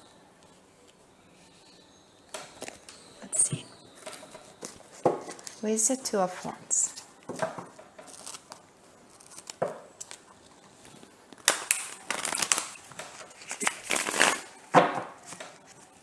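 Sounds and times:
cards being shuffled: 8.1s - 14.6s.

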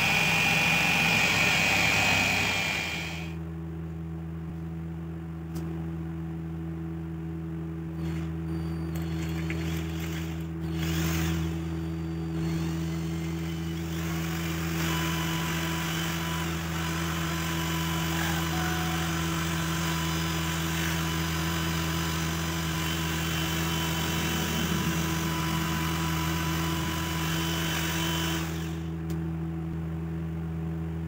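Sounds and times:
cordless drill boring into wood: 0.0s - 3.4s, 8.0s - 8.3s, 8.9s - 29.0s.

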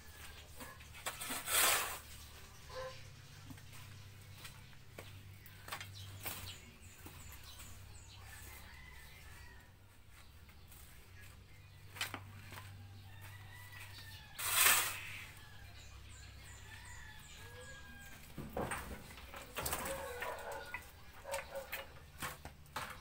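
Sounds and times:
shovel scraping wet cement: 0.7s - 2.3s, 14.3s - 15.4s.

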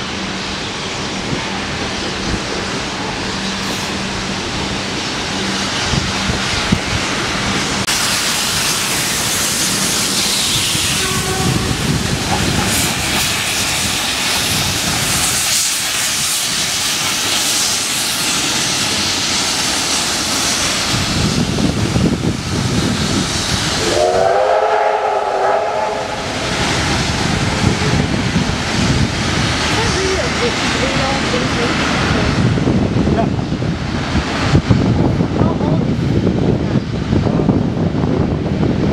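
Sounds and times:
steam locomotive hissing: 0.0s - 38.9s
multi-tone steam whistle: 10.3s - 12.0s, 23.8s - 26.4s.

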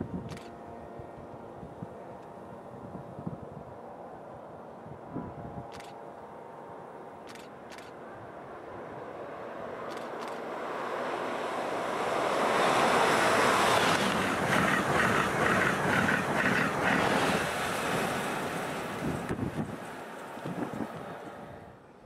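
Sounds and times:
train rushing past: 8.3s - 21.8s
train wheels clattering: 13.7s - 17.5s.

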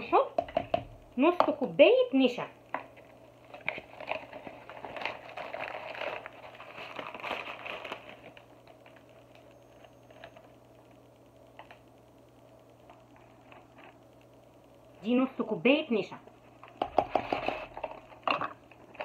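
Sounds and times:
plastic bag rustling and crinkling: 3.0s - 10.5s, 12.9s - 14.0s, 17.1s - 19.0s.

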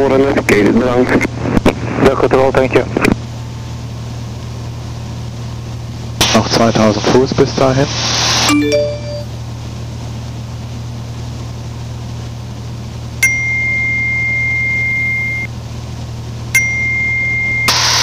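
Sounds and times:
aircraft engine and propeller drone: 0.0s - 18.0s
high beep tone: 8.5s - 9.3s, 13.2s - 15.5s, 16.6s - 17.8s.

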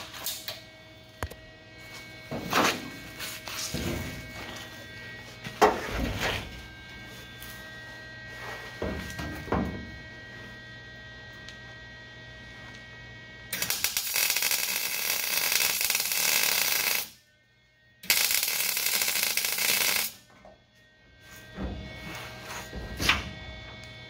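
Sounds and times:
welder crackle: 0.0s - 9.2s, 13.5s - 17.2s, 18.0s - 20.3s.

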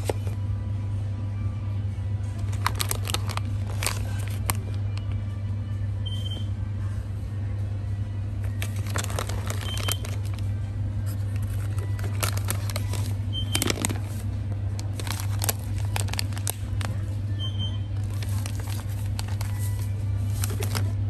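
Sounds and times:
steady low hum: 0.0s - 21.0s
plastic pouch crinkling: 2.4s - 4.9s, 8.5s - 10.5s, 11.1s - 17.1s, 18.0s - 21.0s.

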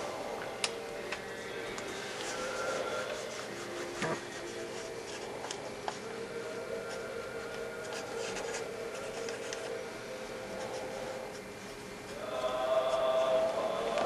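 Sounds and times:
low steady drone: 0.0s - 14.0s
paper slip rustling and scratching: 1.9s - 6.1s, 6.8s - 9.8s.

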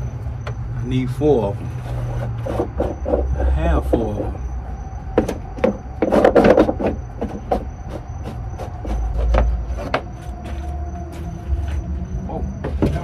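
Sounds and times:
battery box cover scraping: 1.6s - 3.6s
sharp knocks: 5.1s - 10.1s.

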